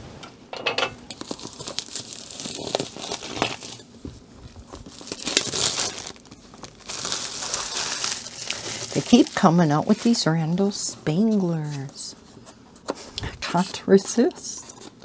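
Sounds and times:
plastic wrap crinkling and tearing: 1.1s - 3.8s, 4.4s - 12.0s.

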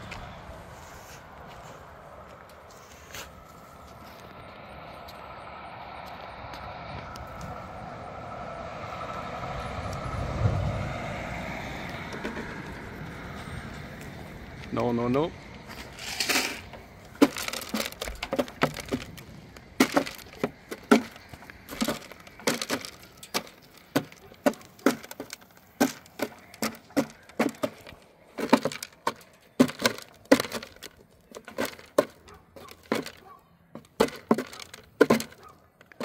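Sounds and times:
sharp cracks and crunches: 15.1s - 36.0s.

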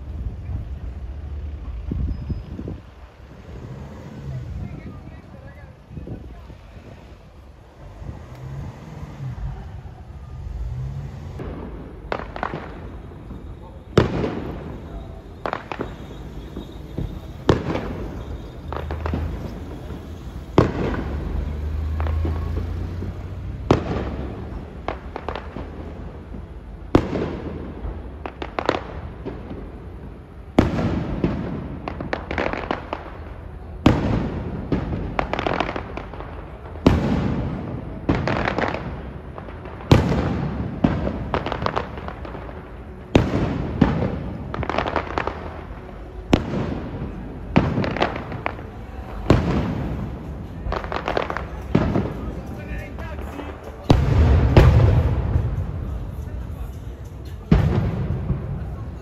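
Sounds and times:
firework shells bursting: 11.4s - 26.4s.

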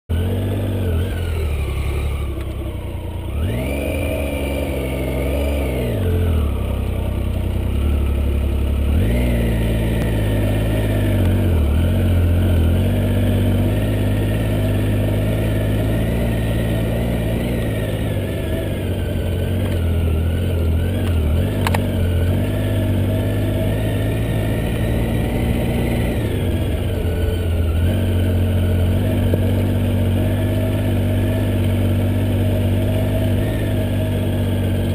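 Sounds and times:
motorcycle engine revving: 0.1s - 34.9s
sharp click: 21.0s - 21.9s.

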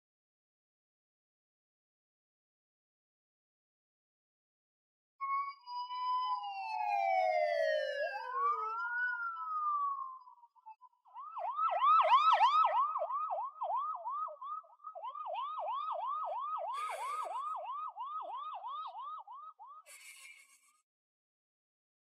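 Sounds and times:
siren yelping: 5.2s - 20.5s.

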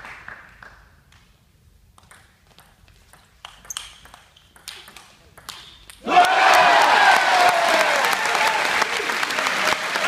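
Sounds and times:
table tennis ball clicking: 2.0s - 6.0s.

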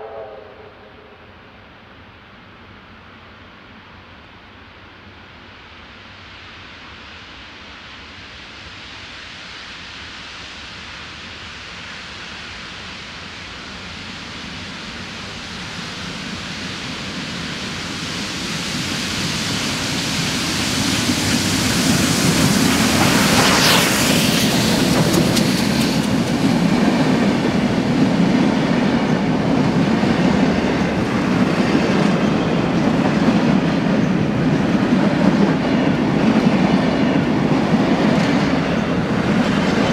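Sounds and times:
steam train passing: 0.0s - 39.9s
wheels rumbling on rails: 15.0s - 39.9s.

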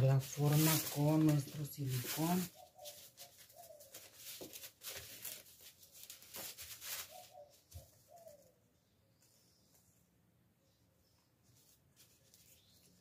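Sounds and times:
crepe paper crinkling: 0.0s - 8.5s
pigeon cooing: 6.9s - 8.6s.

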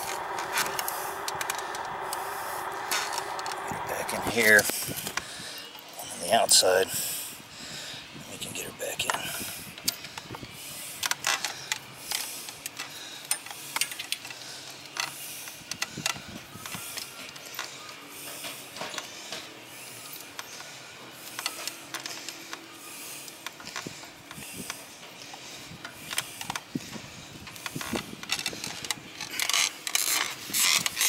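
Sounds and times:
small metal parts clicking: 27.6s - 31.0s.

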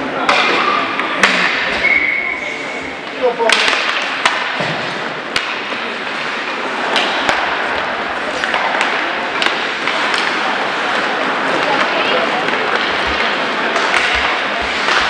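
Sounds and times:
sticks clacking on puck: 0.1s - 2.0s, 3.0s - 15.0s
skates scraping on ice: 3.1s - 15.0s.

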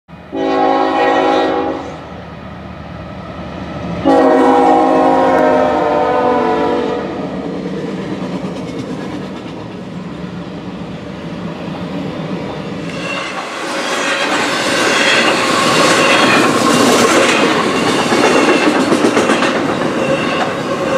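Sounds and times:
locomotive air horn blasts: 0.3s - 2.0s, 4.0s - 7.3s
train rumble and clickety-clack: 0.3s - 20.9s.

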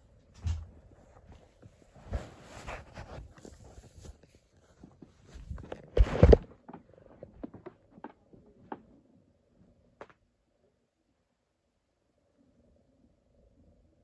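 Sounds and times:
cloth rubbing on microphone: 1.0s - 6.4s.

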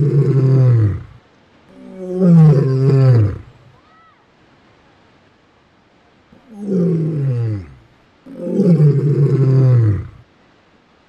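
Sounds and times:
lion roaring: 1.8s - 3.5s, 6.4s - 10.2s.

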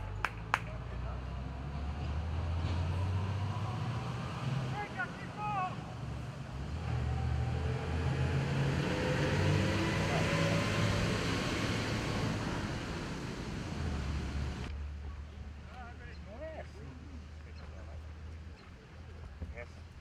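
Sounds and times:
motor passing by: 5.8s - 14.7s.

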